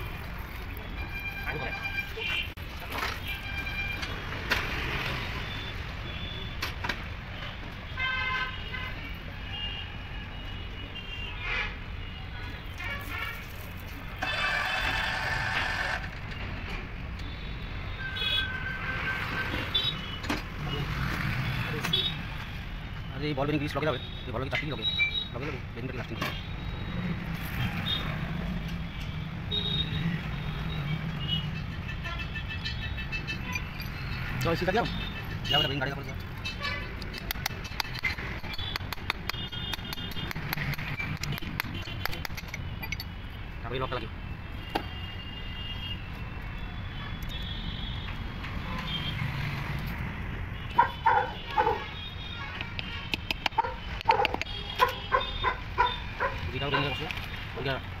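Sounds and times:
road traffic rumble: 0.0 - 58.0
sharp clicks: 36.9 - 43.1.

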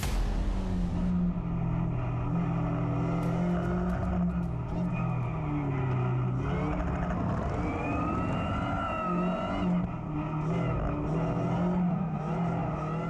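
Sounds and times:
car engine revving hard: 0.9 - 13.0.

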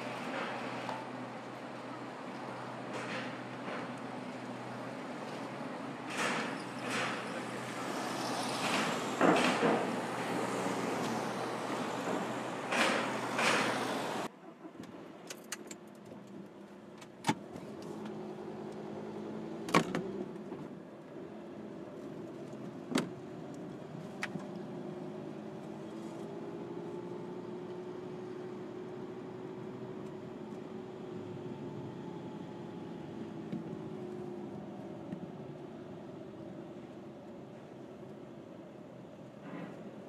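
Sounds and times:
car engine hum: 0.0 - 14.7, 16.6 - 38.3
cars rolling off ramp: 0.0 - 15.0.

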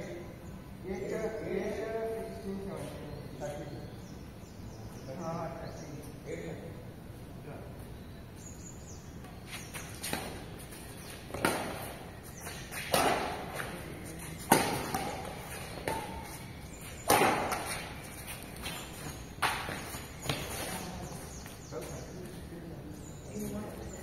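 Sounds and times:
racket striking shuttlecock: 11.3 - 20.6.

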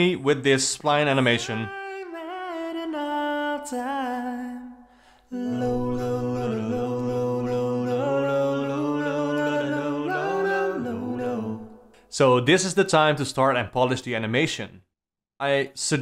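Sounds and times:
person singing long notes: 1.6 - 11.9.

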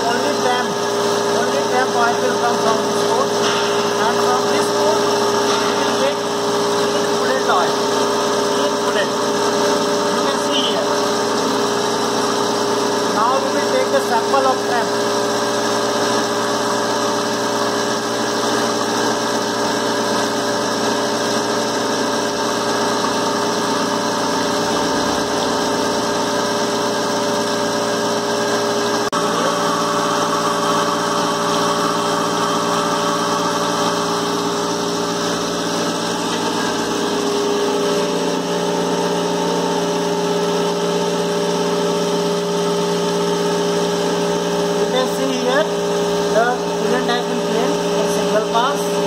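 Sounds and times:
machine hum: 0.0 - 49.0.

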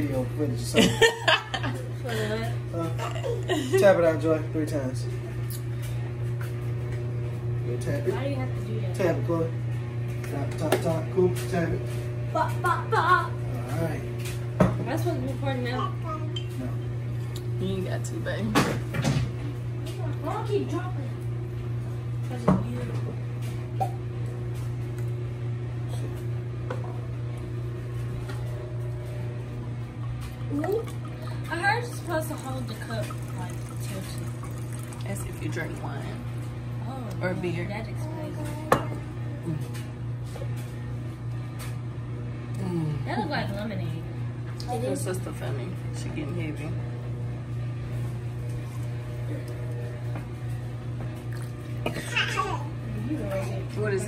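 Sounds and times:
steady low hum: 0.0 - 54.0
drink pouring into a cup: 30.0 - 36.2, 51.2 - 51.9.

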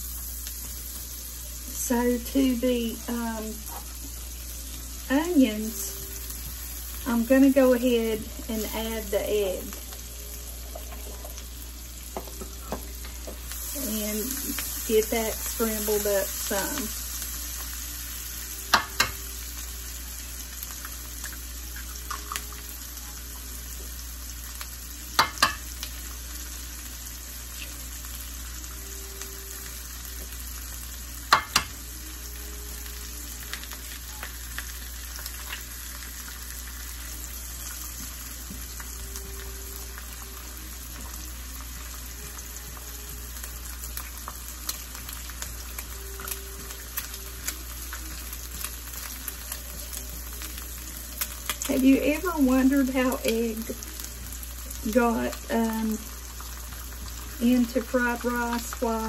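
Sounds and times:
onions sizzling in butter: 0.0 - 59.0.

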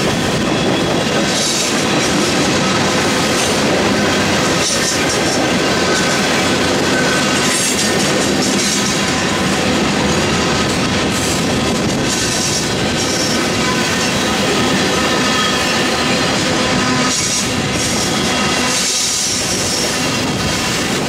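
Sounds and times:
freight train rumbling past: 0.0 - 21.0
wheel clatter over rail joints: 0.0 - 21.0
wheel flange squeal: 4.0 - 7.9, 12.1 - 20.1.

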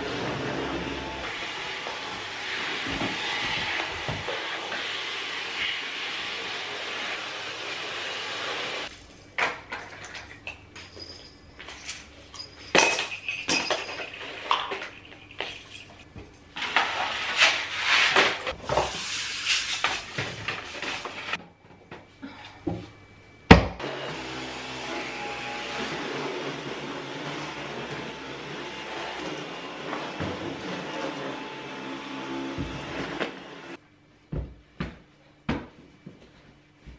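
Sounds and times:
stick vacuum cleaner running: 0.0 - 8.9, 23.8 - 33.8.

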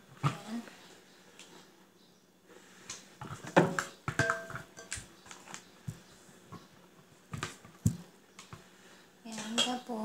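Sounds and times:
spoon knocking and scraping pot: 3.2 - 5.1.

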